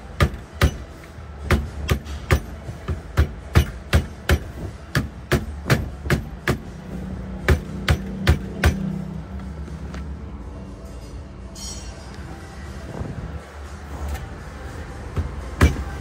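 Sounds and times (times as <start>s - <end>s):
rubber mallet striking steering wheel: 0.2s - 6.7s, 7.4s - 8.9s, 15.2s - 16.0s.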